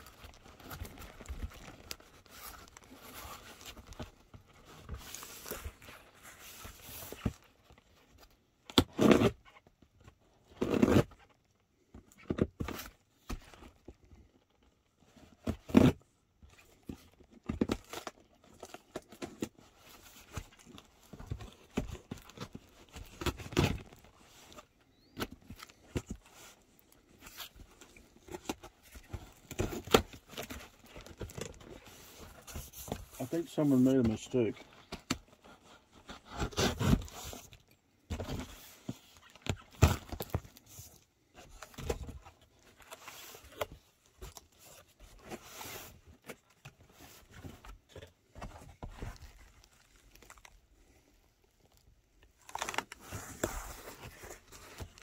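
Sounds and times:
cardboard box scraping: 35.6 - 37.5
packing tape ripping: 52.4 - 53.4.

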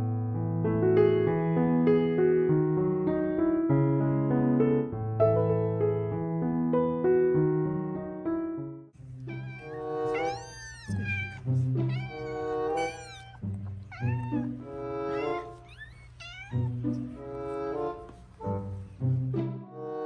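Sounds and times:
kittens mewing: 9.2 - 17.9.

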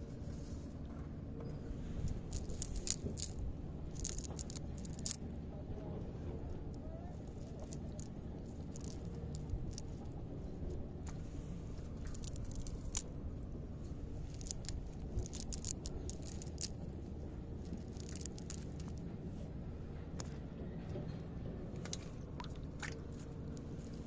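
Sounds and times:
wet net rustling and clicking: 2.1 - 5.2, 7.2 - 10.1, 12.0 - 13.1, 14.3 - 16.9, 17.6 - 19.0.

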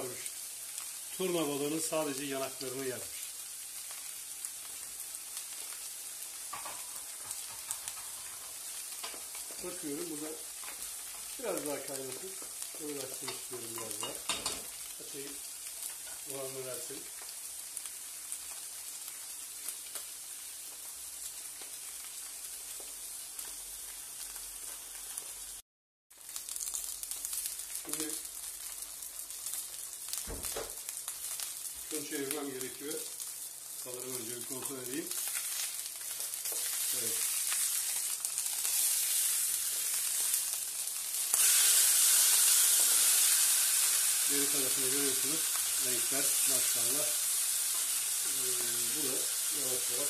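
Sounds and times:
fish sizzling in a grill pan: 0.0 - 50.0.

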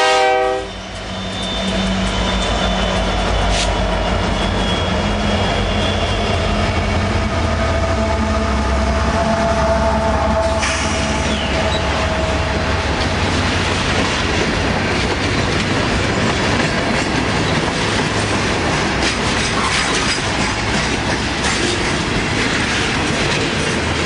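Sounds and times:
freight train wheels rattling: 0.1 - 24.0.

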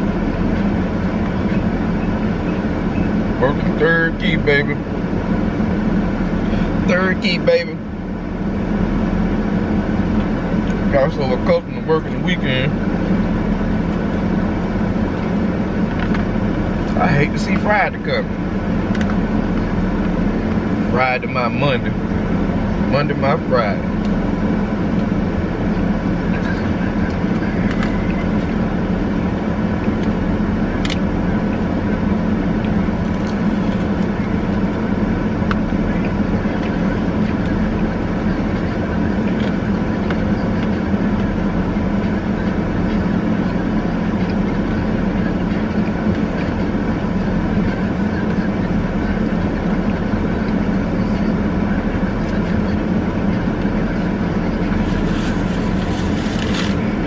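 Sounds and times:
mechanical drone with low hum: 0.0 - 57.0.

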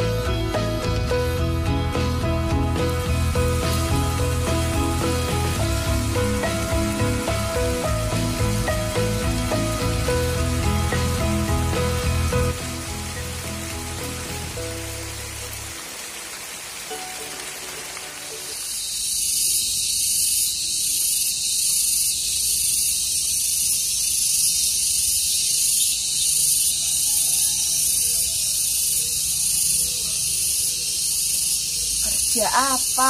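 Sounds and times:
background music: 0.0 - 18.6
pulsing high-pitched hiss: 0.0 - 33.0.

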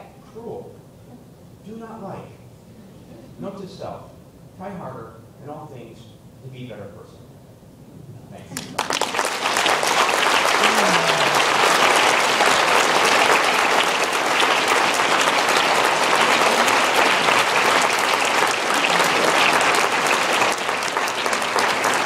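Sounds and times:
audience applause: 8.6 - 22.0.

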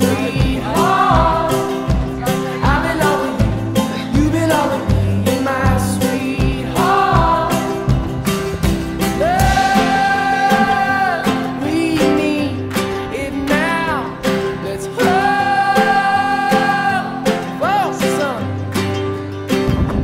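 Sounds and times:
guitar accompaniment: 0.0 - 20.0
person singing long notes: 9.1 - 18.1.

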